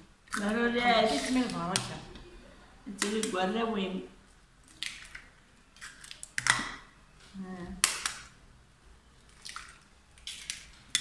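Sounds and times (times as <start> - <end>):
eggshells cracking: 4.6 - 6.9, 7.8 - 8.4, 9.3 - 11.0.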